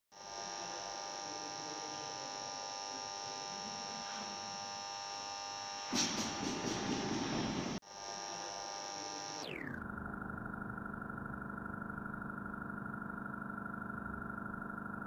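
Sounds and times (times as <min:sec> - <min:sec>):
electrical buzz with high whine: 0:00.1 - 0:15.0
spikes striking the track: 0:05.9 - 0:07.8.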